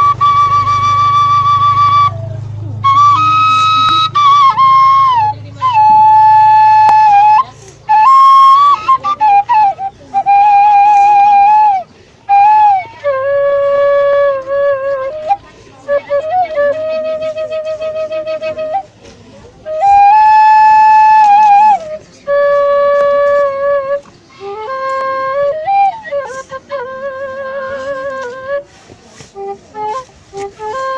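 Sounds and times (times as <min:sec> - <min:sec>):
bamboo flute melody: 0:00.0 - 0:30.9.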